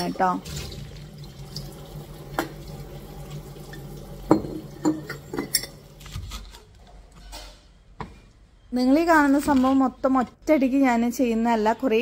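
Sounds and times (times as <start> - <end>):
tap water running: 0.0 - 6.3
glass jars clinking: 4.3 - 5.9.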